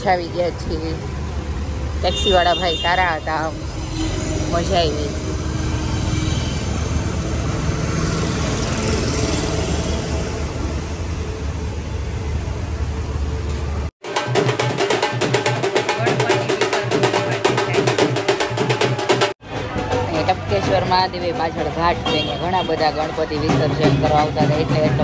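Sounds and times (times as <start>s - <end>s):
street traffic rumble: 0.0s - 25.0s
loud rapid drumming: 14.0s - 25.0s.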